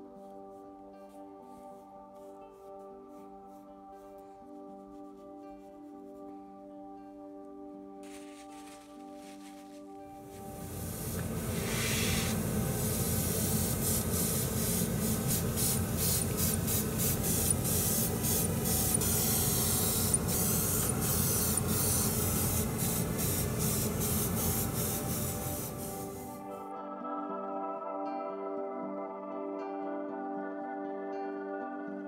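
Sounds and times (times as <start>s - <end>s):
airbrush spraying hiss: 8.0s - 26.5s.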